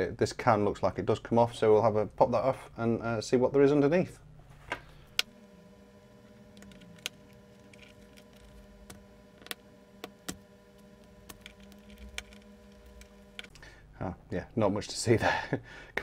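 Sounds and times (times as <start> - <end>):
low hum: 4.2 - 15.5.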